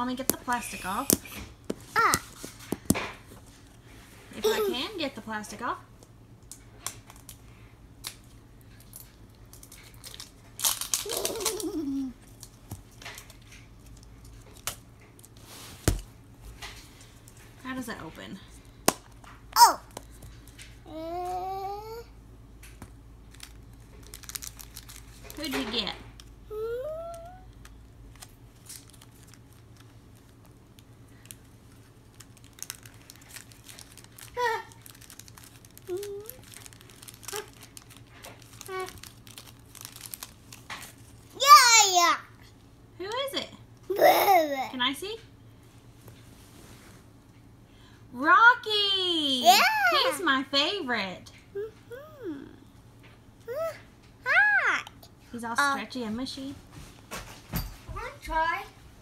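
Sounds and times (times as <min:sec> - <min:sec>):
plastic wrapping crinkling and tearing: 0:06.8 - 0:15.4, 0:23.2 - 0:26.3, 0:26.9 - 0:41.4.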